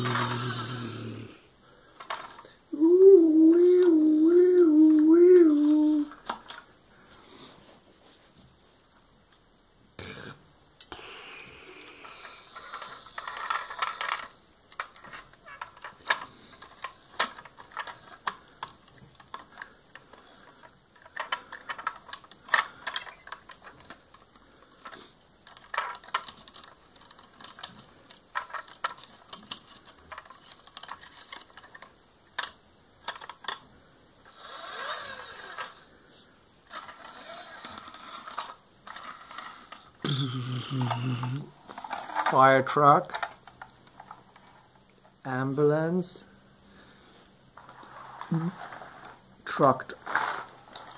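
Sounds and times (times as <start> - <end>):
plastic toy ladder clicking: 12.0 - 33.7, 34.3 - 35.8, 36.7 - 44.6, 47.6 - 50.9.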